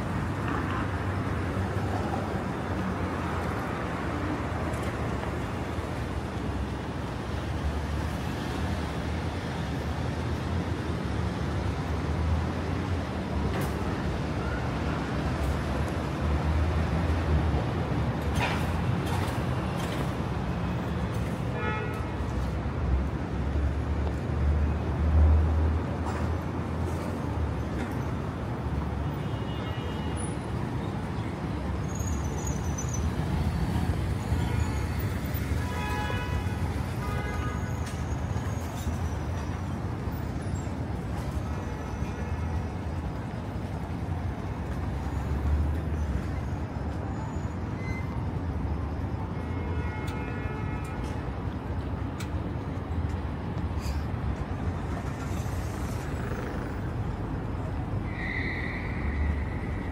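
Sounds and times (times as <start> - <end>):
road traffic: 0.0 - 59.9
passing vehicle rumble: 53.3 - 59.9.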